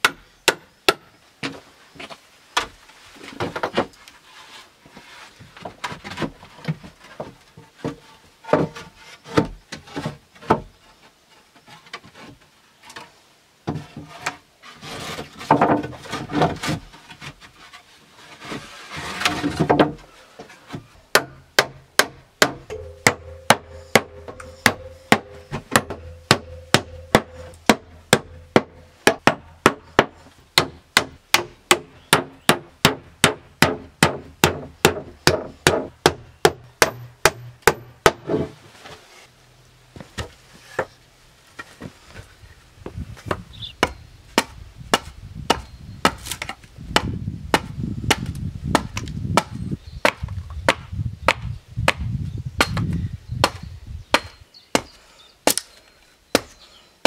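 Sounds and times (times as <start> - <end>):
rasping scrape: 13.8 - 19.7
hammer blows on wood: 21.2 - 38.2.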